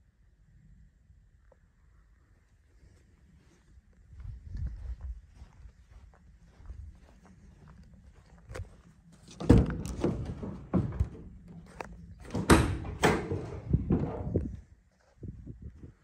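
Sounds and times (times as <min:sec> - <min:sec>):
van doors clunking open: 0:09.3 - 0:14.4.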